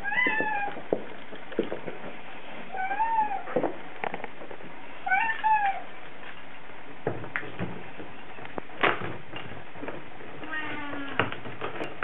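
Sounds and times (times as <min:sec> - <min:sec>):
cat meowing: 0:00.0 - 0:00.8, 0:02.7 - 0:03.6, 0:05.0 - 0:05.9.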